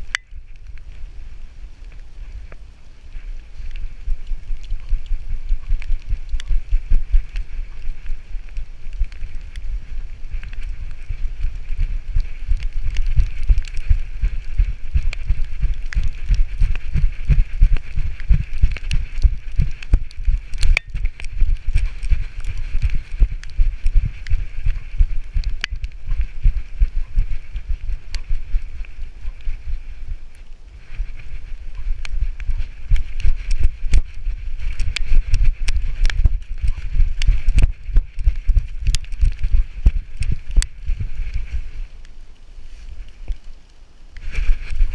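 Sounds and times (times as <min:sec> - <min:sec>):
steady hiss: 0:00.0 - 0:44.9.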